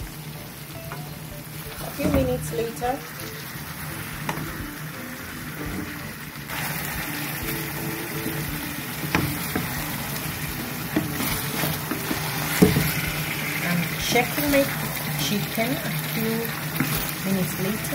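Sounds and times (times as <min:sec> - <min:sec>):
food sizzling in hot oil: 0:00.0 - 0:17.9
wooden spatula knocking pan: 0:01.9 - 0:02.8, 0:07.7 - 0:13.4.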